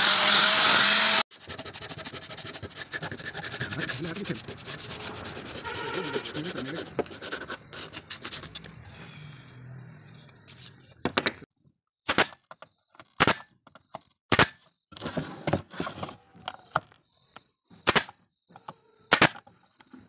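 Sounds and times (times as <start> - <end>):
nail gun shots into wood: 12.0 - 12.4, 13.2 - 13.5, 14.3 - 14.6, 17.8 - 18.2, 19.1 - 19.4
scraping and handling noise: 14.9 - 17.1.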